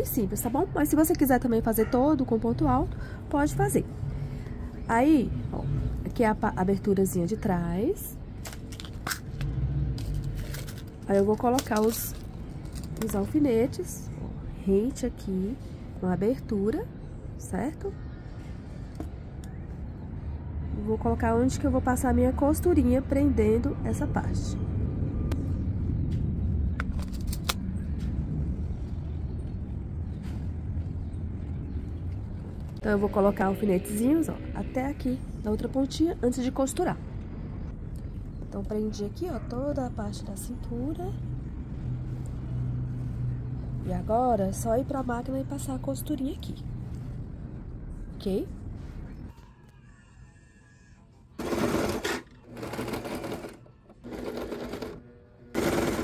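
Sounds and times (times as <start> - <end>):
sewing machine stitching: 51.4 - 55.0, 55.6 - 56.0.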